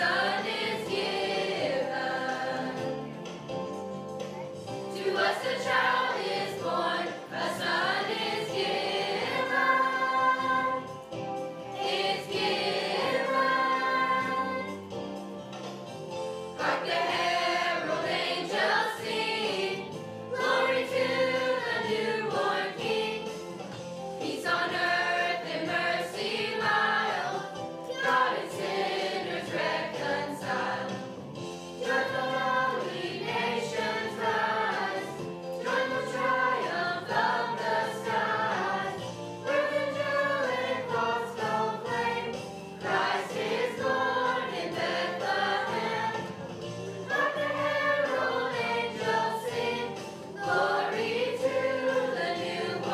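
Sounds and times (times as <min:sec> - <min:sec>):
youth choir singing: 0:00.0 - 0:03.1, 0:04.9 - 0:11.0, 0:11.7 - 0:14.9, 0:16.6 - 0:23.6, 0:24.2 - 0:31.2, 0:31.8 - 0:46.4, 0:47.0 - 0:52.9.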